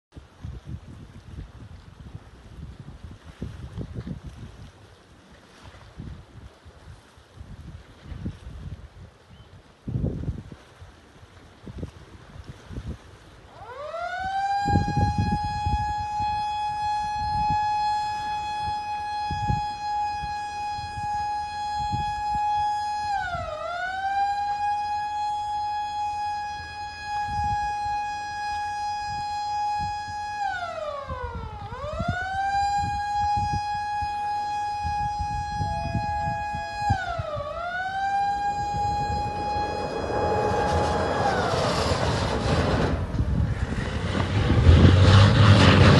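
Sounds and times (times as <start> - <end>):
wind buffeting microphone: 0.1 - 45.9
lifeboat rushing down slipway: 11.2 - 45.9
warning siren wailing: 13.5 - 43.6.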